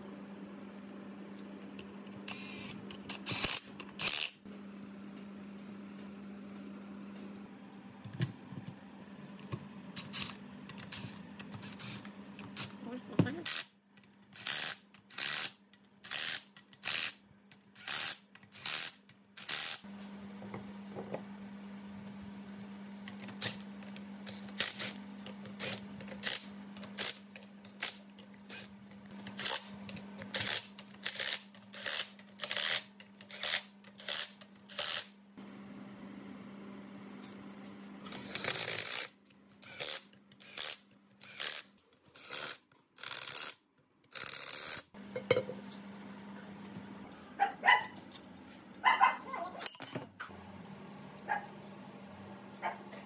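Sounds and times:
ratchet wrench ratcheting: 0:02.3 - 0:04.4, 0:14.4 - 0:17.2, 0:17.8 - 0:19.8, 0:25.6 - 0:29.7, 0:30.3 - 0:35.1, 0:38.1 - 0:44.9.

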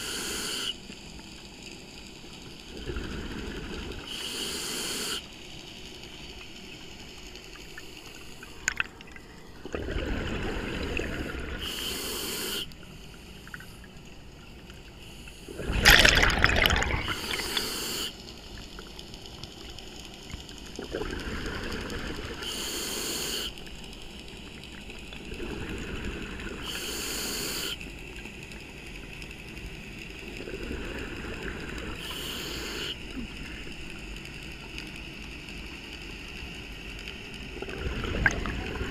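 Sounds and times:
regulator hissing inhalations: 0:00.0 - 0:00.8, 0:04.0 - 0:05.3, 0:10.8 - 0:13.9, 0:17.0 - 0:18.3, 0:22.3 - 0:23.6, 0:26.5 - 0:27.8, 0:31.9 - 0:33.2
regulator bubbling exhalations: 0:09.6 - 0:11.8, 0:15.5 - 0:18.1, 0:37.6 - 0:38.9.

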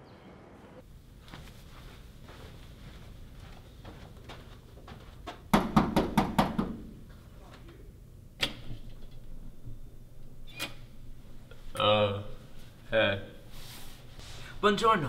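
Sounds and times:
faint footsteps: 0:00.8 - 0:05.5
knocking on a door: 0:05.5 - 0:06.8.

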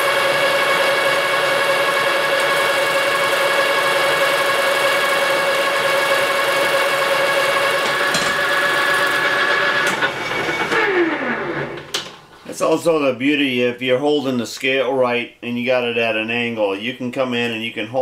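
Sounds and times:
lathe whining: 0:00.0 - 0:12.0.

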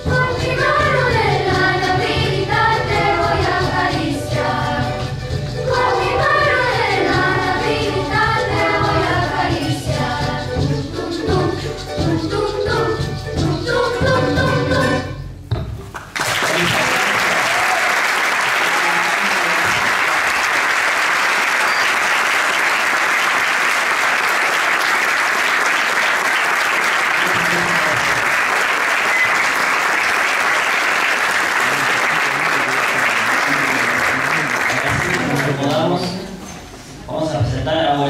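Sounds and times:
children's choir singing: 0:00.0 - 0:15.2
audience applause: 0:16.0 - 0:36.2.

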